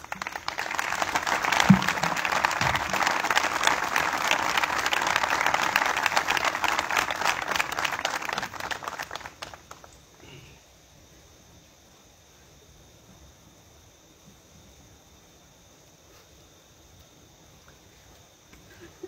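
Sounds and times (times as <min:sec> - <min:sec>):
crowd applauding: 0:00.0 - 0:10.0.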